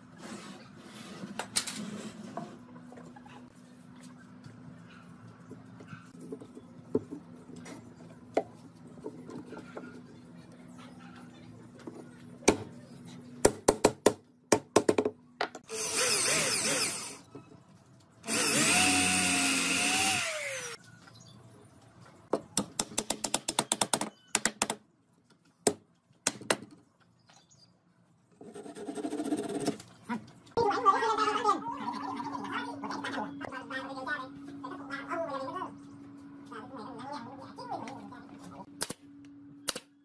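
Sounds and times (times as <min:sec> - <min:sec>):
power drill boring into wood: 0:15.7 - 0:17.2, 0:18.3 - 0:20.8.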